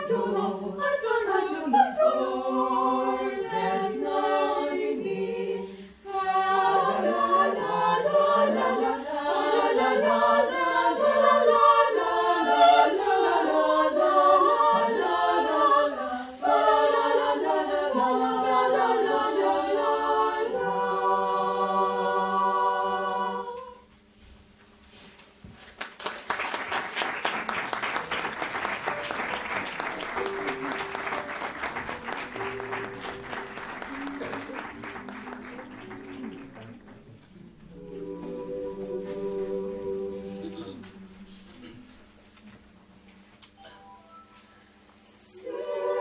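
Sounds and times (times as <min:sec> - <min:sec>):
mixed choir singing a cappella: 0:00.0 - 0:23.9, 0:37.3 - 0:42.2, 0:45.0 - 0:46.0.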